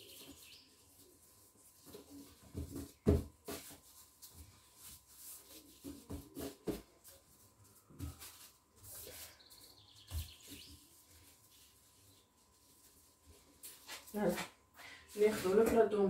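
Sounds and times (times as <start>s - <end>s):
hands rubbing dough on stone: 0.0s - 14.5s.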